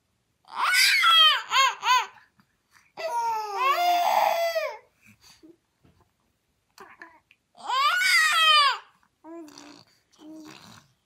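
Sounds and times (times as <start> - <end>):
toddler crying: 0.5 - 2.2, 3.0 - 4.9, 7.6 - 8.9.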